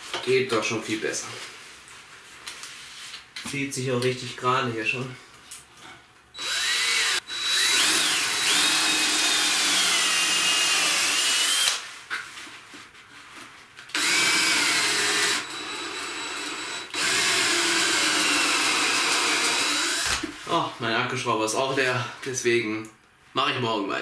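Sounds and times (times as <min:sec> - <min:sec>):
cordless drill motor whine: 0:06.4 - 0:11.8, 0:13.9 - 0:20.2.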